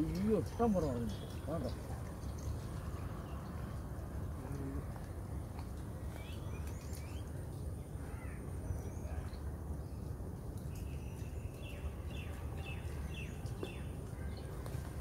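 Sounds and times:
birds chirping: 0.0s - 3.8s.

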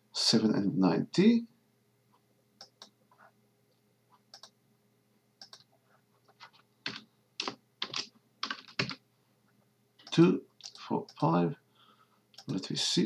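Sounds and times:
keyboard typing: 4.3s - 4.5s, 5.4s - 5.7s, 6.4s - 9.0s, 10.0s - 11.3s.

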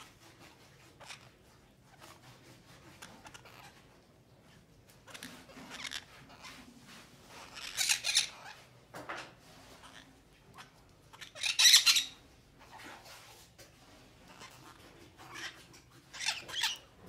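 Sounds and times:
parakeet squawking: 1.0s - 3.9s, 5.0s - 6.6s, 7.3s - 8.7s, 9.7s - 12.9s, 14.2s - 17.0s
short parakeet calls: 9.8s - 12.2s.

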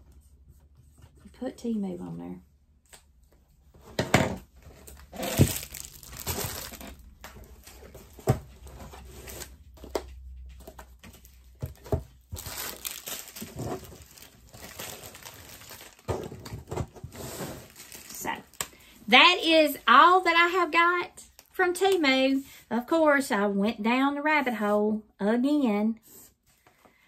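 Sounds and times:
packaging crinkling and rustling: 4.6s - 18.8s.

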